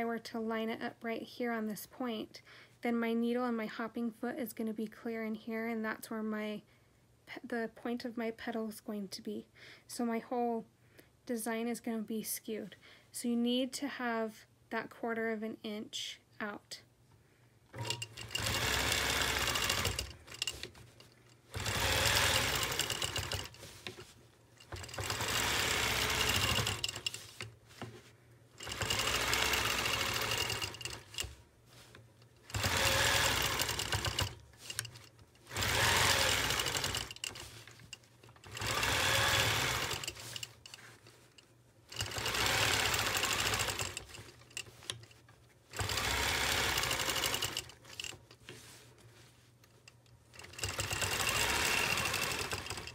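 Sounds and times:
quilting machine stitching: 17.7 - 27.9, 28.6 - 41.2, 41.9 - 48.2, 50.3 - 52.9.

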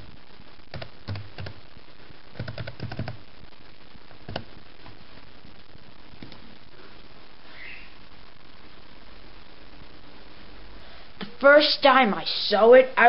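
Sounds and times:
steady hiss: 0.0 - 13.0
keyboard keys clicking: 2.4 - 3.2.

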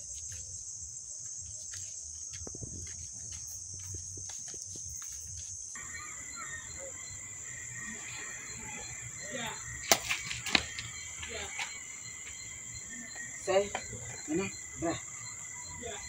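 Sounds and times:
crickets chirring: 0.0 - 16.0
insect chorus: 0.0 - 16.0
steady low whine: 5.8 - 16.0.

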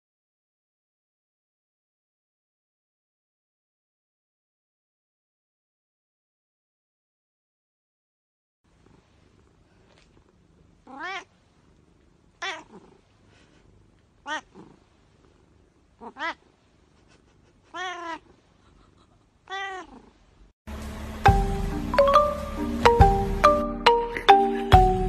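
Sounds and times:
cat meowing: 10.8 - 11.3, 12.4 - 13.0, 14.2 - 14.8, 16.0 - 16.5, 17.6 - 18.4, 19.4 - 20.1
music: 20.7 - 25.0.

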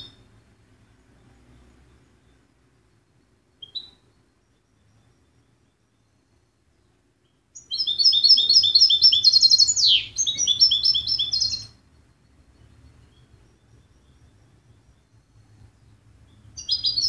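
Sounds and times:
goldfinch singing: 0.0 - 0.3, 3.2 - 6.3, 7.2 - 17.0.

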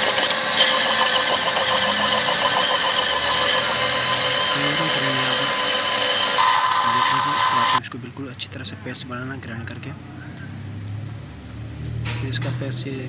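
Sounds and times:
blades churning wet paste: 0.0 - 7.8
blender motor whining: 0.0 - 7.8.

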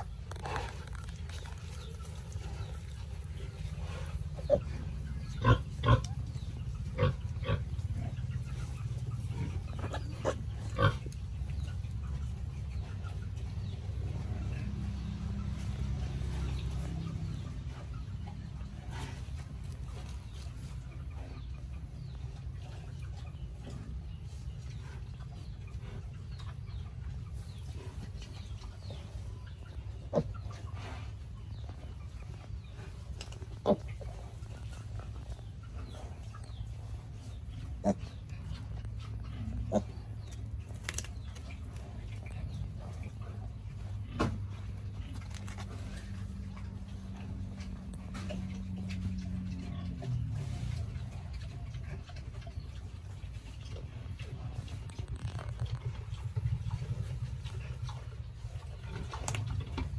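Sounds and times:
piglets calling: 0.0 - 11.7, 33.6 - 36.6, 37.6 - 40.5
low rumble: 0.0 - 33.2, 33.9 - 59.9.

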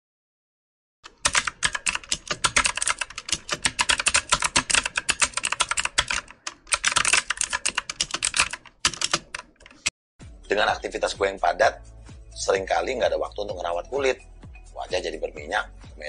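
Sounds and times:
computer keyboard typing: 1.1 - 9.9.

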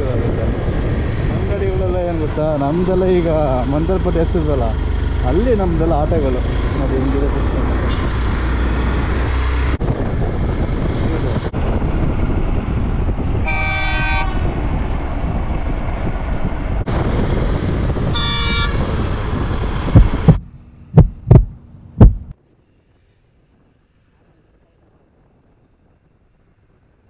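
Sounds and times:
wind rush: 0.0 - 3.2, 7.4 - 22.4
motorcycle engine: 3.3 - 10.9, 18.7 - 22.3
horn blowing: 13.4 - 14.4, 18.1 - 18.8
deep booms: 19.8 - 22.3.

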